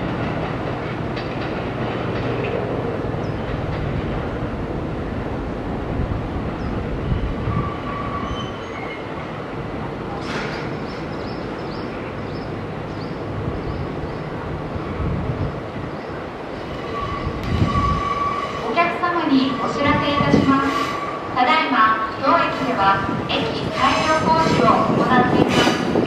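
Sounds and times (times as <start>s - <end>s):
train wheels rumbling on track: 0.0s - 26.0s
high wheel squeals: 7.5s - 9.1s, 16.8s - 18.7s.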